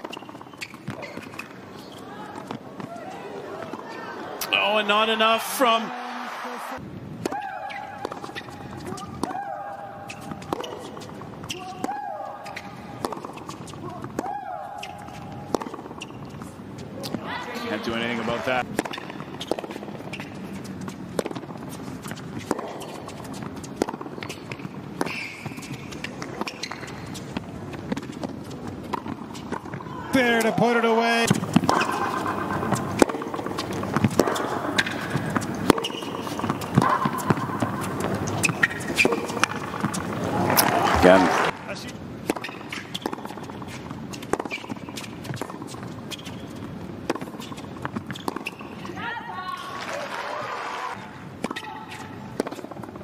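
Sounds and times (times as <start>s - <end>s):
shoe squeak on court: 0.0s - 2.5s, 7.6s - 9.1s, 10.0s - 14.0s, 14.7s - 17.2s, 18.8s - 21.0s, 21.7s - 27.3s, 31.3s - 49.0s
ball bouncing: 0.0s - 3.0s, 7.2s - 17.3s, 18.6s - 20.4s, 21.1s - 41.6s, 42.3s - 49.0s
racket hitting tennis ball: 7.2s - 17.3s, 18.6s - 41.6s, 42.2s - 49.0s, 51.4s - 53.0s
footsteps on court: 8.0s - 50.0s.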